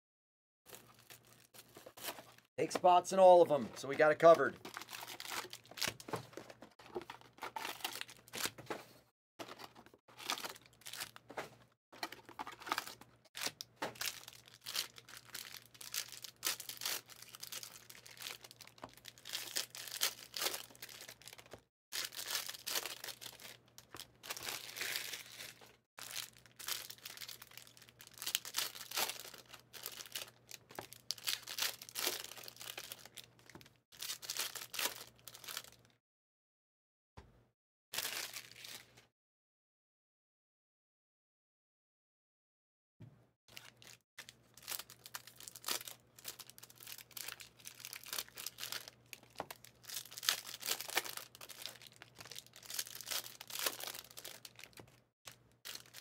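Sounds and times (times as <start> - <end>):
foil wrappers crinkling: 4.3 - 8.6, 9.4 - 11.3, 12.0 - 35.8, 43.5 - 56.0.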